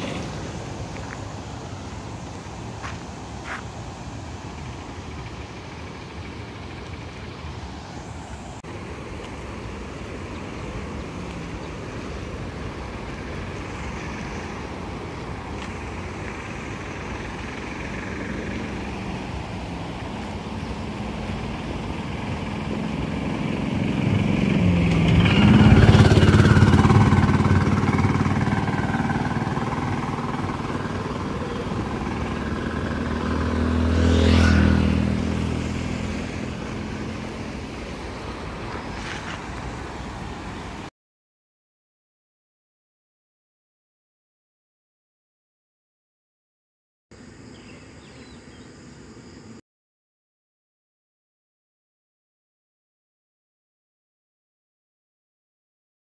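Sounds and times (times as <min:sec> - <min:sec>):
motor vehicles passing: 0:00.0 - 0:40.9
river water over weir: 0:00.0 - 0:40.9.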